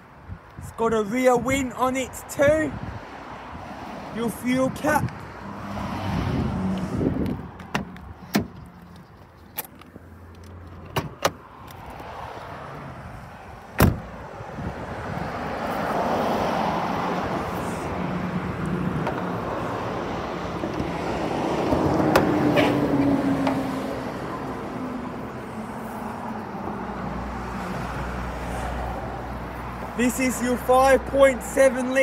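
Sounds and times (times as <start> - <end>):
car bonnet opening: 7.6 - 8.7, 9.5 - 11.8, 13.8 - 14.1, 20.6 - 23.8.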